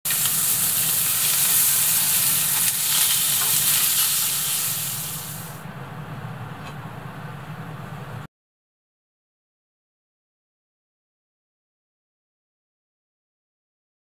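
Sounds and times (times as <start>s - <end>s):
food sizzling in frying pan: 0.1s - 5.6s.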